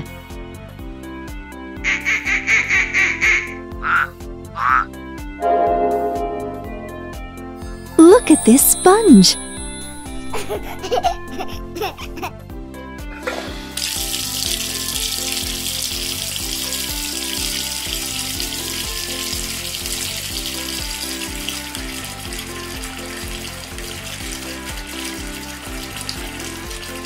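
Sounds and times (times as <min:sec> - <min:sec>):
light background music: 0:00.0 - 0:27.0
tap water pouring: 0:13.7 - 0:27.0.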